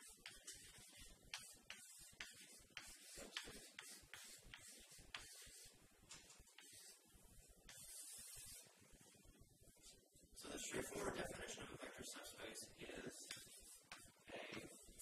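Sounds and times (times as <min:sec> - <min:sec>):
chalk scratching on blackboard: 0:00.0 - 0:09.2, 0:13.1 - 0:15.0.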